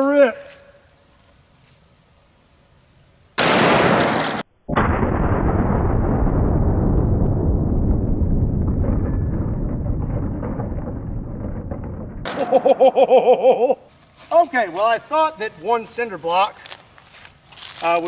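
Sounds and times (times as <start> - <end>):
rifle shot: 3.4 - 6.9
deep slowed-down boom: 4.7 - 12.6.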